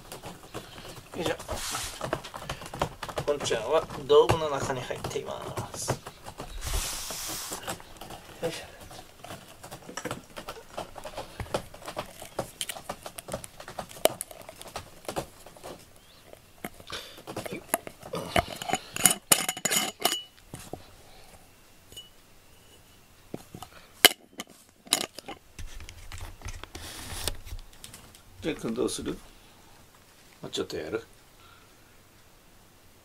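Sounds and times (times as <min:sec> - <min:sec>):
scratching and rustling: 0:00.0 - 0:30.4
glass jar clinking: 0:18.3 - 0:20.4, 0:21.9 - 0:22.2.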